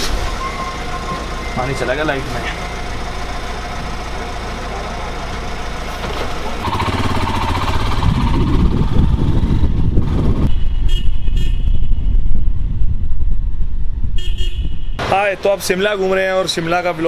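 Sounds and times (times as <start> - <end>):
motorcycle engine running: 0.8 - 10.7.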